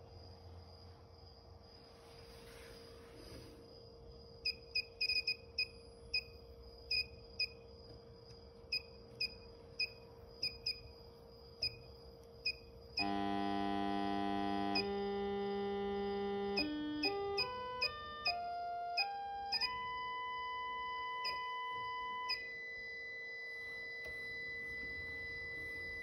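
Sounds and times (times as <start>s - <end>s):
faint steady whine: 0.0s - 26.0s
loud buzzy tone: 12.5s - 26.0s.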